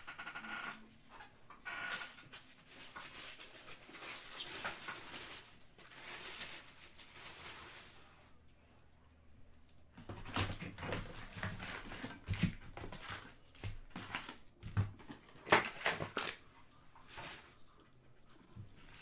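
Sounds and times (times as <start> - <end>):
card wrappers crinkling: 2.0 - 8.0, 10.3 - 16.4.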